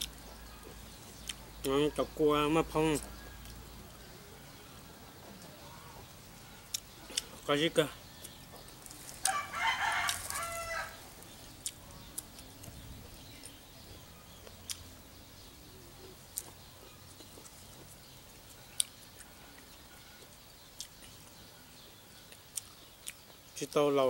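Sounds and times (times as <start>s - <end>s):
rooster crowing: 9.2s - 11.1s.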